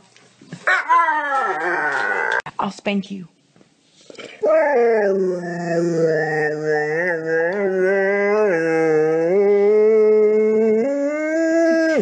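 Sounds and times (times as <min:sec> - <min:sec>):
dog howling: 0:00.6 - 0:02.5, 0:04.4 - 0:12.0.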